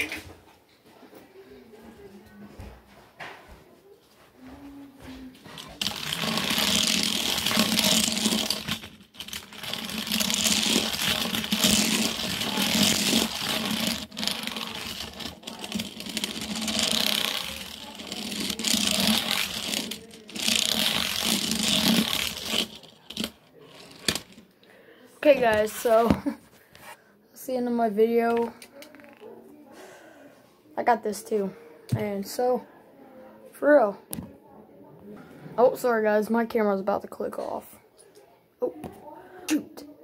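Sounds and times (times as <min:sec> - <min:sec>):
toy car wheels rattling over blocks: 0:05.6 - 0:24.5.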